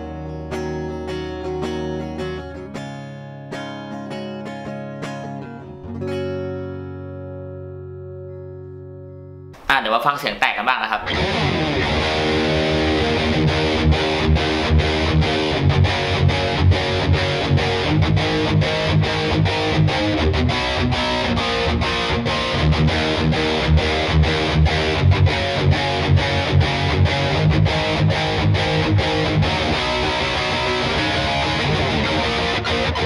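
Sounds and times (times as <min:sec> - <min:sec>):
distorted electric guitar riffing: 0:10.6 - 0:33.0.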